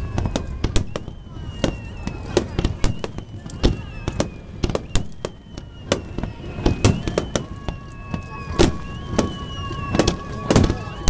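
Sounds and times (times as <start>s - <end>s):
firework booms and cracks: 0.0s - 11.0s.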